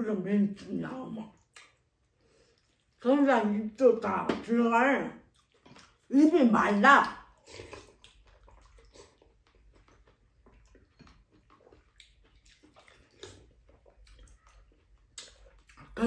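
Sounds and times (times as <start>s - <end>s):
slurping and chewing: 1.4s - 3.0s, 5.2s - 6.1s, 7.1s - 16.0s.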